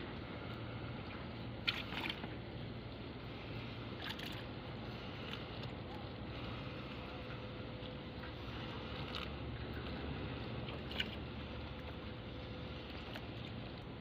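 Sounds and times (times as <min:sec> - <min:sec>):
steady low hum: 0:00.0 - 0:14.0
water splashes: 0:00.0 - 0:14.0
wet net rustling and dripping: 0:01.5 - 0:02.5, 0:03.9 - 0:07.0, 0:07.9 - 0:13.9.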